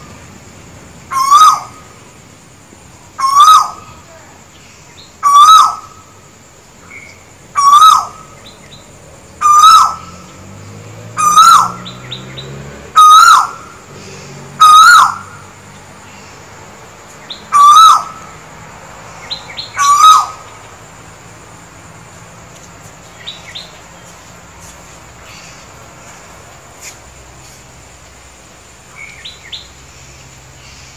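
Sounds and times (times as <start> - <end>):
koel calling: 1.1 - 2.0, 3.2 - 4.2, 5.2 - 6.1, 7.5 - 8.6, 9.4 - 10.1, 11.2 - 11.8, 13.0 - 15.4, 17.5 - 18.2, 19.2 - 20.6.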